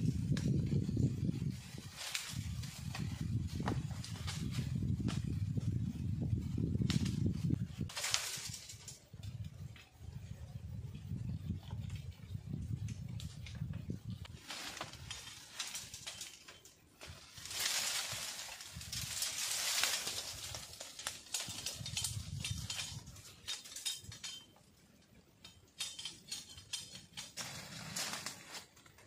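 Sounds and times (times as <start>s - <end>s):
bamboo leaves rustling: 0.0s - 10.0s, 11.2s - 29.0s
stems snapping: 14.2s - 24.4s.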